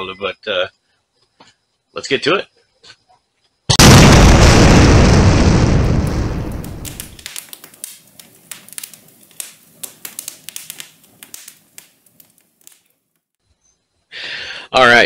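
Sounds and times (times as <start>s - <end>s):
explosion: 3.7s - 7.6s
sparks crackling: 3.7s - 13.4s.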